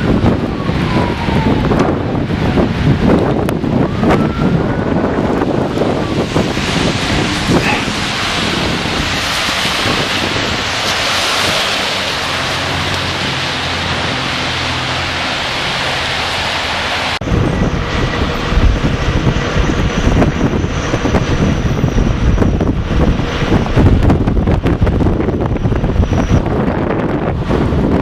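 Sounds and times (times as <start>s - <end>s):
snowstorm wind rushing: 0.0s - 28.0s
wind gusts buffeting microphone: 0.0s - 28.0s.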